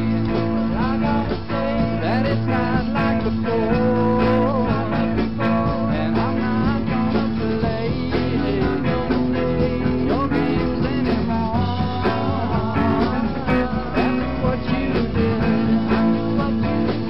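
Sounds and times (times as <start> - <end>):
rock band playing: 0.0 - 17.0.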